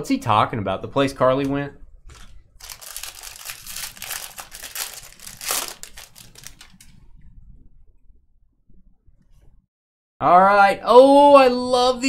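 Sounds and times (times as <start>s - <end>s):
plastic wrapper crinkling and tearing: 2.0s - 7.0s.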